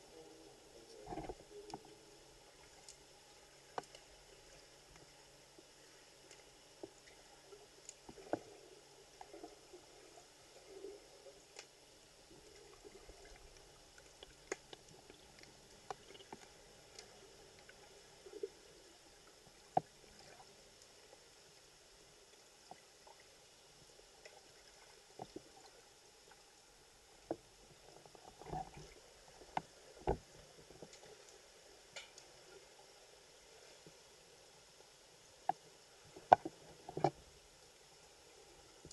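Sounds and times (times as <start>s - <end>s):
faint underwater hiss: 0.0s - 38.9s
sharp underwater clicks: 30.9s - 32.3s.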